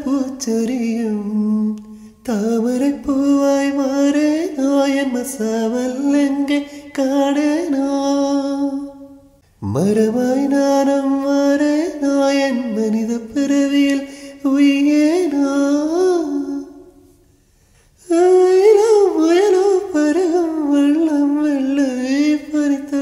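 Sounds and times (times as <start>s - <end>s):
man singing: 0.0s - 17.0s, 18.0s - 23.0s.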